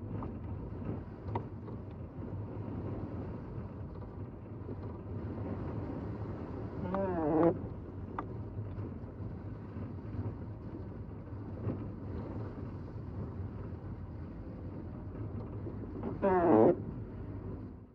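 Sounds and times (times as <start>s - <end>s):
engine and tyres rumbling: 0.0s - 17.9s
windshield wiper squealing: 16.2s - 16.8s.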